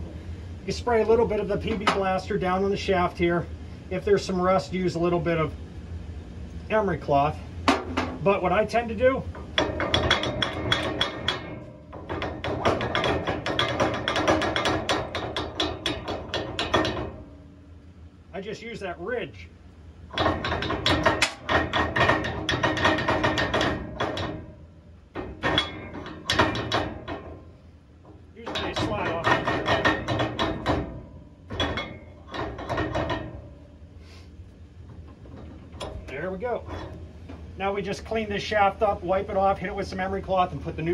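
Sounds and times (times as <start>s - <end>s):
metal-on-metal knocking: 1.0s - 2.4s, 7.6s - 17.7s, 20.1s - 33.9s, 34.7s - 39.5s
metal pulley clacking and scraping: 7.7s - 17.4s, 20.1s - 33.7s, 34.8s - 38.6s.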